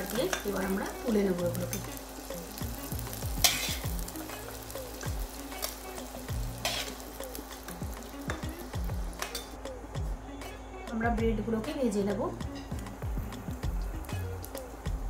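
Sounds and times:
onions sizzling in butter: 0.0s - 10.0s, 11.9s - 15.0s
spatula scraping pan: 3.4s - 3.9s.

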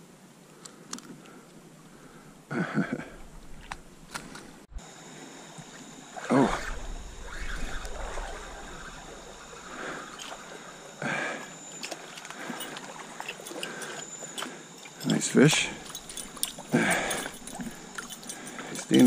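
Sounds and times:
stream water trickling: 11.7s - 15.2s.

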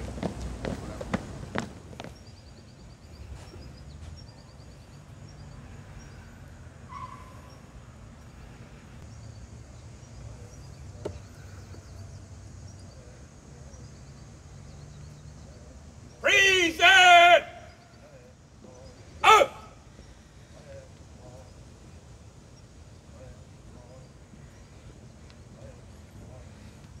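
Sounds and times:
faint bird chirps: 2.1s - 16.3s.

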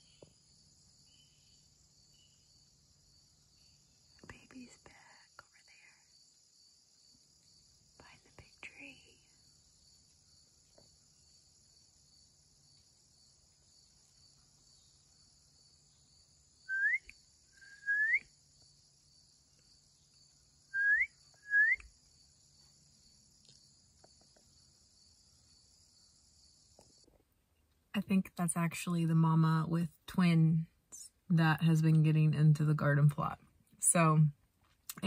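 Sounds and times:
high drone of insects: 0.0s - 27.1s
short rising whistles: 16.7s - 18.2s, 20.7s - 21.9s.

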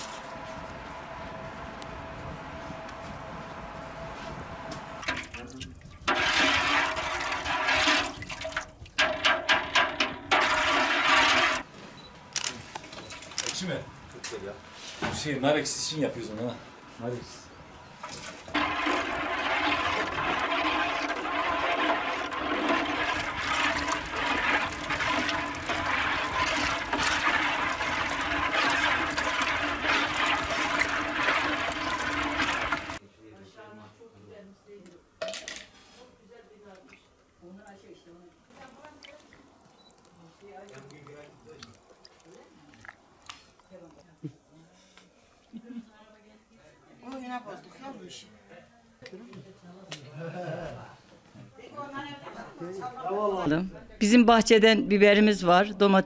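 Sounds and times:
wood fire crackling: 0.0s - 11.7s, 18.3s - 33.0s
liquid sloshing in cooking pot: 5.0s - 11.6s, 18.0s - 33.0s, 38.5s - 43.6s.

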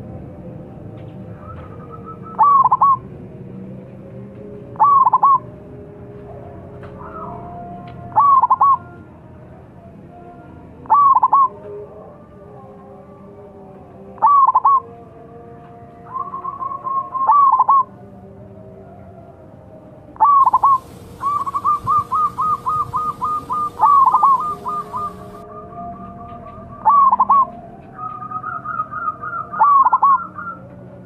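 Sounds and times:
dove cooing: 1.4s - 3.0s, 4.8s - 5.4s, 8.1s - 8.9s, 10.8s - 11.6s, 14.2s - 14.9s, 16.1s - 17.9s, 20.2s - 25.4s, 26.8s - 30.6s.

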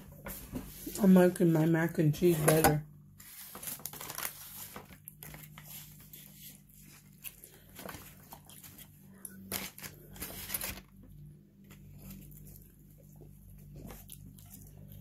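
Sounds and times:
faint steady hum: 0.0s - 15.0s
chewing and mouth noises: 12.2s - 15.0s.

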